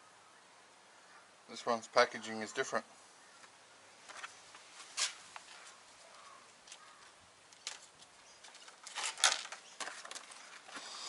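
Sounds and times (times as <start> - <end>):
plastic packaging crinkling: 7.6 - 10.9.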